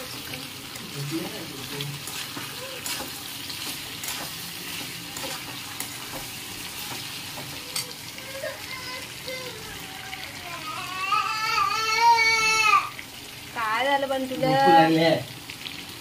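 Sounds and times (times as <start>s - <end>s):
chicken sizzling in a pan: 0.0s - 16.0s
spoon scraping against pan: 0.1s - 8.1s.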